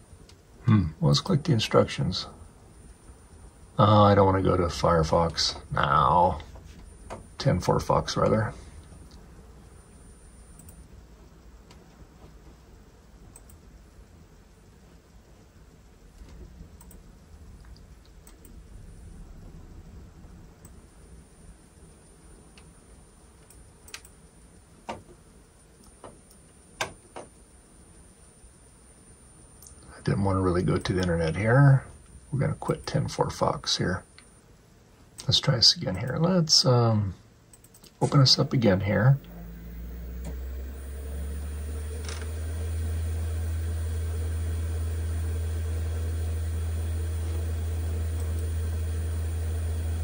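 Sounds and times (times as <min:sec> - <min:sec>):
computer humming: 0:00.0 - 0:50.0
computer mouse clicks: 0:10.5 - 0:10.8, 0:13.3 - 0:13.6, 0:16.2 - 0:17.0, 0:17.6 - 0:18.6, 0:23.4 - 0:24.2, 0:37.5 - 0:38.2.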